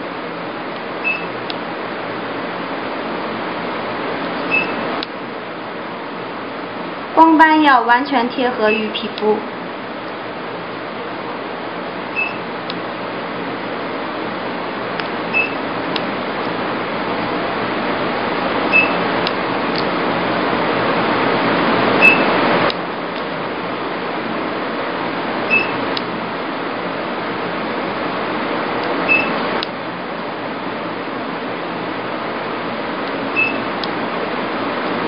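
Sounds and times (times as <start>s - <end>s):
short high beeps: 1.0s - 1.4s, 4.5s - 4.8s, 12.2s - 12.4s, 15.3s - 15.6s, 22.0s - 22.3s, 25.5s - 25.8s, 29.1s - 29.3s, 33.4s - 33.7s.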